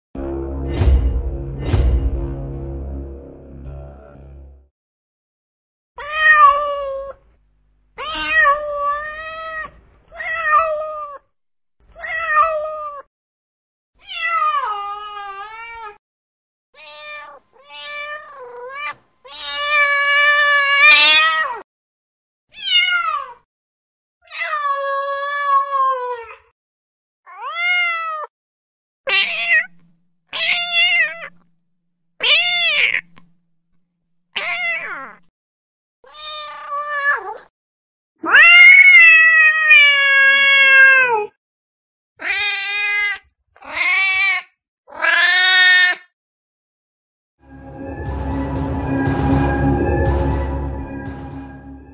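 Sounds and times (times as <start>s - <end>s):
cat meowing: 8.0s - 11.2s, 16.8s - 21.6s, 22.6s - 23.4s, 27.3s - 28.3s, 29.1s - 31.3s, 32.2s - 33.2s, 34.4s - 35.2s, 36.1s - 37.5s, 38.2s - 41.3s, 42.2s - 46.0s.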